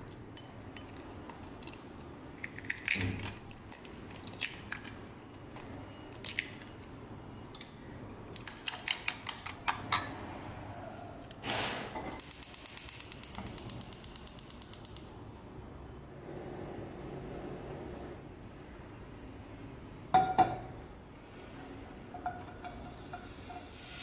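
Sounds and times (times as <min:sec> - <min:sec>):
gas hob igniter ticking: 0:12.2 - 0:15.1.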